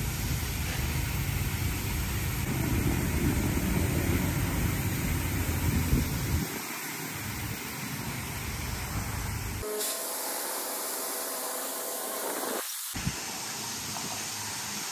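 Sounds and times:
high-pressure water spray: 0.0 - 14.9
low rumble: 1.4 - 6.5.

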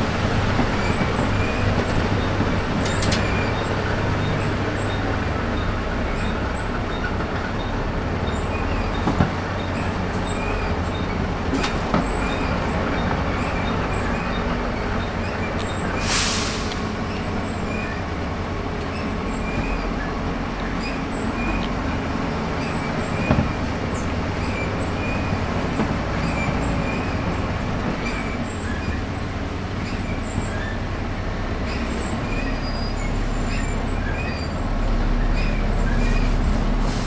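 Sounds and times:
bus diesel engine running: 0.0 - 37.0
squeaks and rattles of fittings: 0.6 - 16.0, 18.8 - 29.2, 29.8 - 30.9
air hiss: 16.0 - 17.0.

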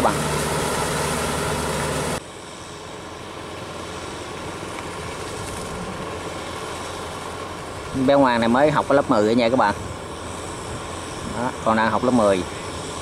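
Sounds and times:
wheels churning through mud: 0.0 - 2.2
diesel tractor engine running: 0.0 - 13.0.

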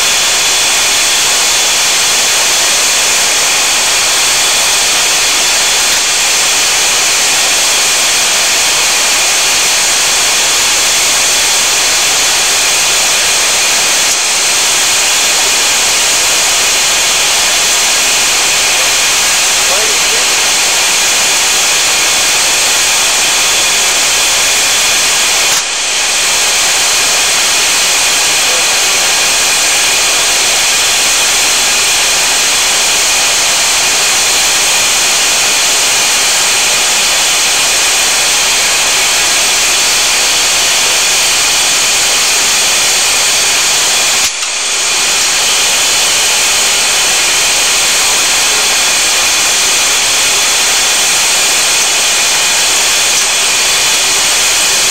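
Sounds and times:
faint high whine: 0.0 - 34.2
aircraft engines roaring: 0.0 - 54.9.

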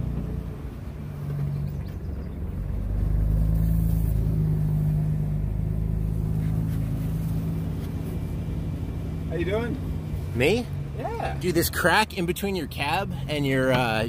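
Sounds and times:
pickup truck engine running: 0.0 - 14.0.

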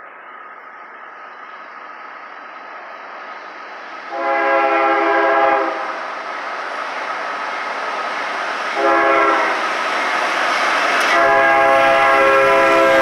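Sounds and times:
approaching train rumble: 0.0 - 13.0
locomotive air horn blast: 4.1 - 6.0, 8.8 - 9.6, 11.0 - 13.0.

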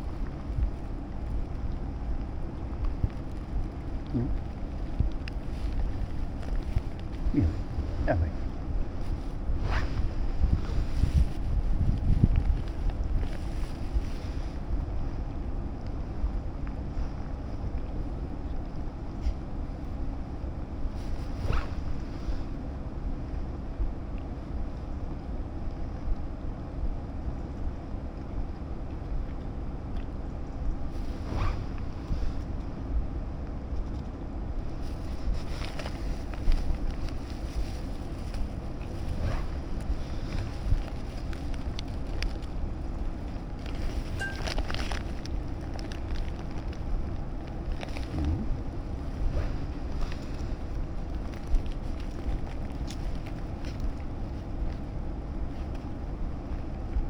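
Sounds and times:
wind buffeting microphone: 0.0 - 16.4
faint clicks and rustles: 0.0 - 26.3, 27.0 - 57.0.

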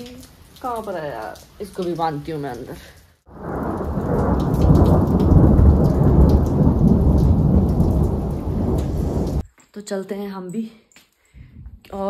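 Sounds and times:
rain falling: 0.0 - 9.4
thunder rolling: 3.3 - 9.4.

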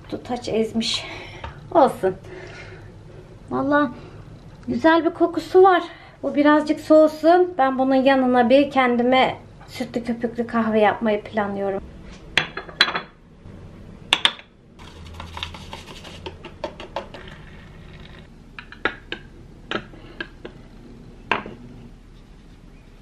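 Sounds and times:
low humming noise: 0.0 - 23.0
cups and spoon clinking: 18.6 - 20.6.

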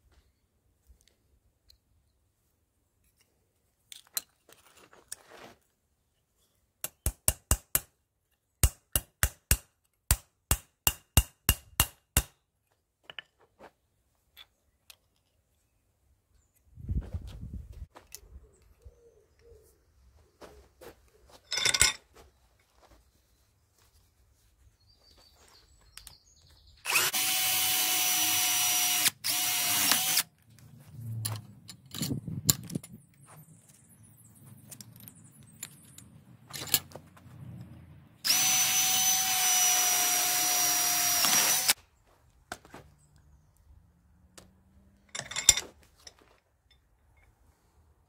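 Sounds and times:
cordless drill drilling into steel: 26.8 - 30.3, 38.2 - 41.8.

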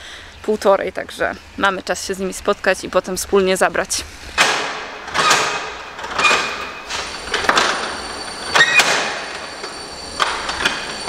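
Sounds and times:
high metallic squeaks: 5.0 - 11.0.

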